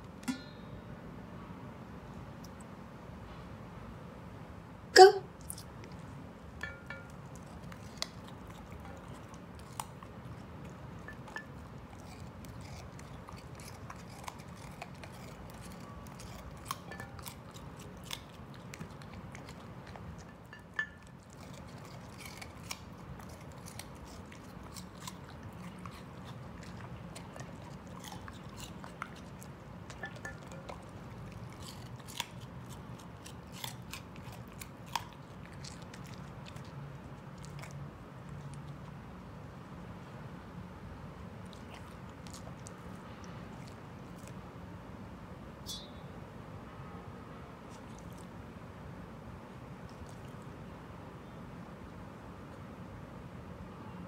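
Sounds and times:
dog crunching carrots: 5.4 - 39.6, 41.2 - 44.8, 47.6 - 48.4, 49.4 - 50.6.

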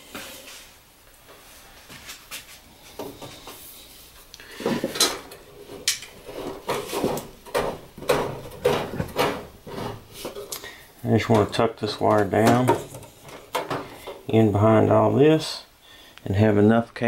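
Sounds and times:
cable rubbing and knocking on metal: 4.7 - 10.6.

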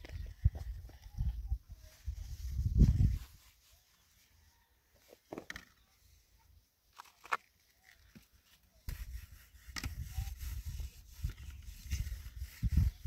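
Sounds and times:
wind buffeting microphone: 0.0 - 3.3, 9.8 - 13.0.

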